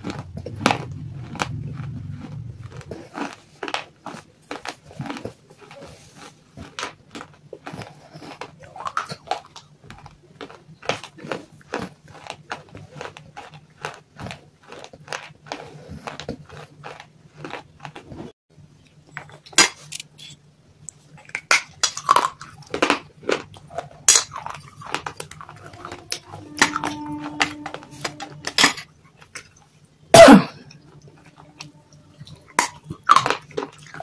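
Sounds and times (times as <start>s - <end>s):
clay being bitten and chewed: 0.0s - 18.3s
clay scraping in a steel bowl: 24.4s - 28.9s
metal bowl ringing: 25.3s - 28.9s.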